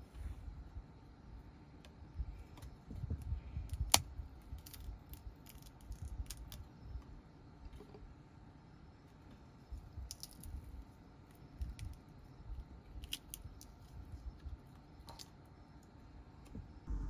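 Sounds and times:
peanut shells cracking: 3.7s - 6.7s, 10.0s - 10.6s, 12.9s - 13.9s
shell snaps and crinkles: 3.7s - 6.7s, 10.0s - 10.6s, 12.9s - 13.9s.

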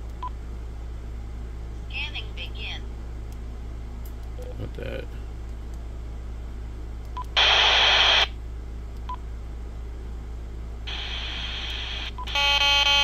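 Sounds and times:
radio receiver hiss: 7.4s - 8.3s, 10.9s - 12.2s
buzzing tone: 10.9s - 13.0s.

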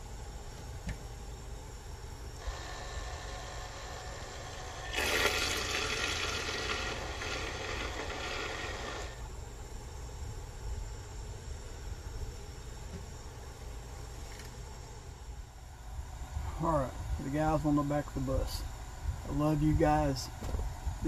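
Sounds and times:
small motor whirring: 2.4s - 9.3s
swirling liquid: 4.6s - 9.2s.

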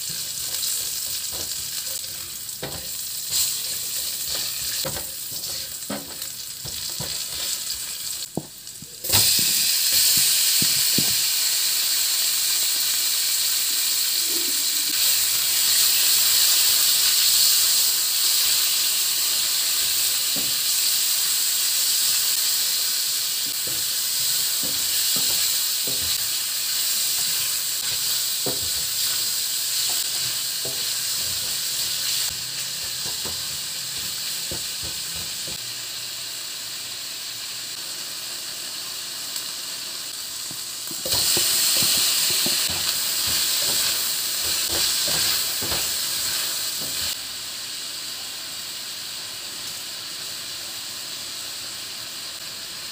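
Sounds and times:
spoon scraping a pan: 0.0s - 7.9s, 23.5s - 35.6s, 40.9s - 47.2s
chicken sizzling in hot oil: 0.0s - 52.9s.

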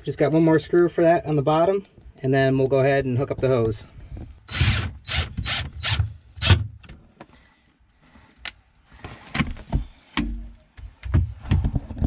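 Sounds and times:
cordless drill driving screw: 4.5s - 6.6s.

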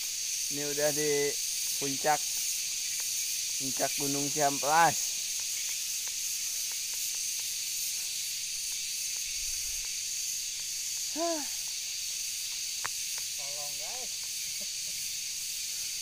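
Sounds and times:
cicadas buzzing: 0.0s - 16.0s.

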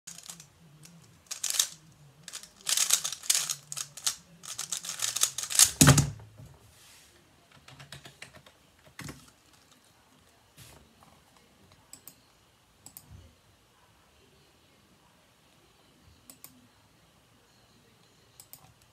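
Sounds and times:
speed cube clattering clicks: 0.1s - 6.0s.

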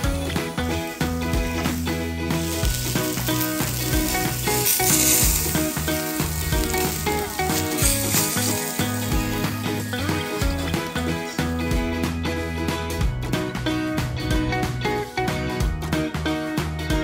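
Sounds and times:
meat sizzling on a grill: 0.0s - 12.5s
background music: 0.0s - 17.0s.

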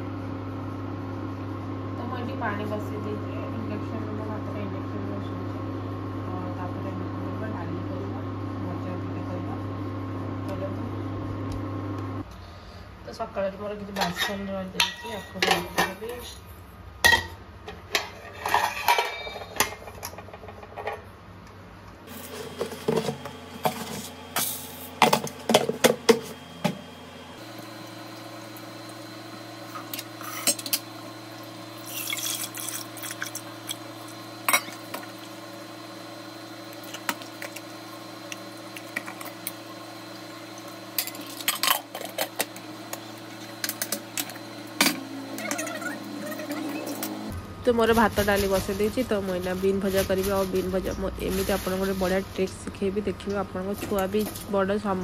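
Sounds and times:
metal pots and utensils clinking: 13.9s - 16.0s, 17.0s - 20.2s, 34.5s - 35.1s.

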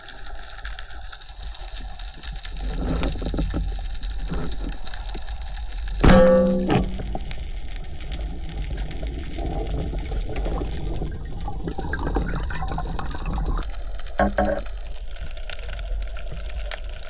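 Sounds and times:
underwater water rush: 0.0s - 17.0s
bubbling clicks: 0.9s - 17.0s.

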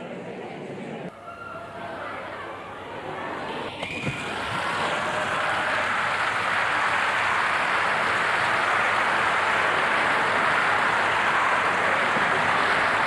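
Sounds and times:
crowd noise: 0.0s - 13.0s.

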